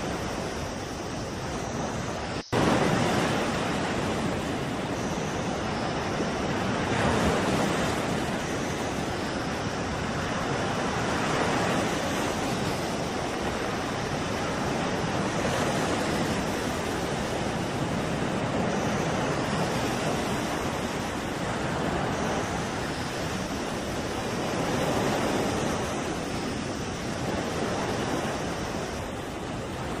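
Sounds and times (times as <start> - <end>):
wind: 0.0 - 30.0
waves breaking against ship: 2.6 - 4.9.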